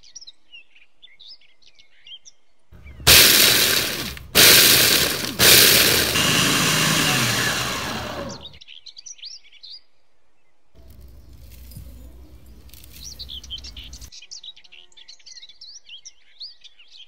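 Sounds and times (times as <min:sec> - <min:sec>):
birds chirping faintly: 0:01.3 - 0:03.1, 0:10.8 - 0:14.5
electric food chopper grinding: 0:02.8 - 0:08.6.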